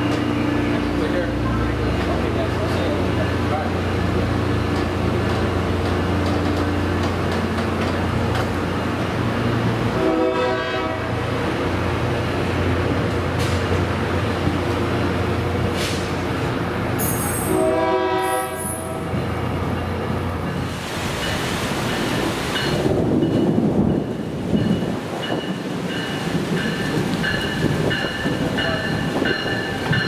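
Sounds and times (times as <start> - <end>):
train rumbling past: 0.0 - 30.0
train horn blasts: 9.9 - 11.2, 17.0 - 19.2.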